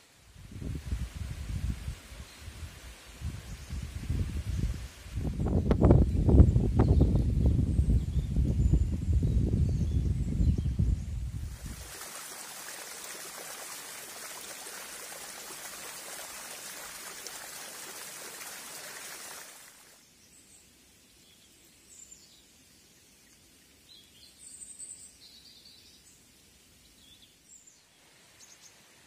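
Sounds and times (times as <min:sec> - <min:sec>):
stream water rushing: 0:11.5 - 0:20.0.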